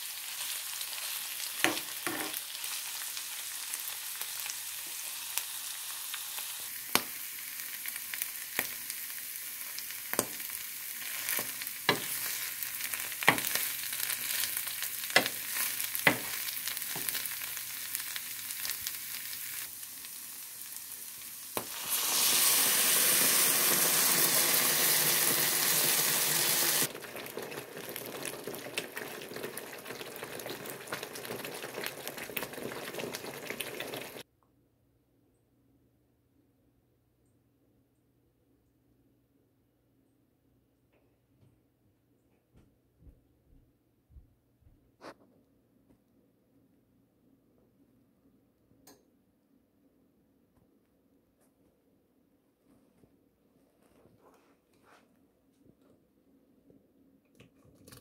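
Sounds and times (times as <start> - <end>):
vegetables sizzling in frying pan: 0.0 - 34.2
even hiss: 18.8 - 26.9.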